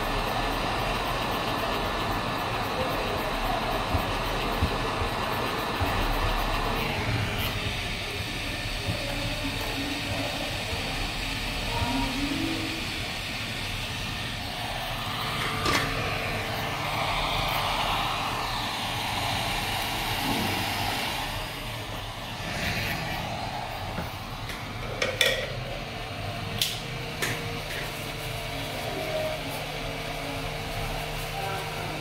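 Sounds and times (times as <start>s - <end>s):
hot air blower hissing: 0.0s - 32.0s
steady low hum: 0.0s - 32.0s.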